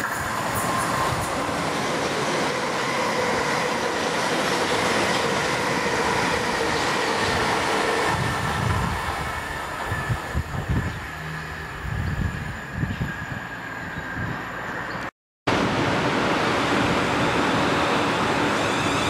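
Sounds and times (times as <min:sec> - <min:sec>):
train wheel and rail noise: 0:00.0 - 0:19.0.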